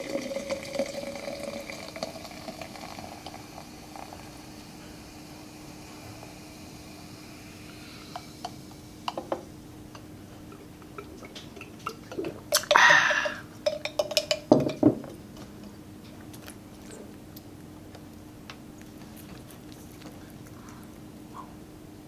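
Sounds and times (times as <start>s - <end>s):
drink pouring into glass: 0.0s - 4.7s.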